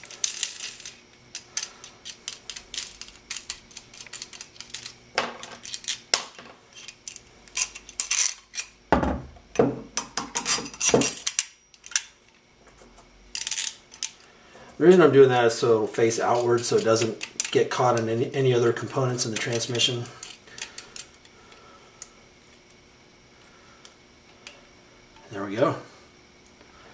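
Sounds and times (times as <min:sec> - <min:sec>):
metal bolts clinking and rattling: 0:10.0 - 0:12.1.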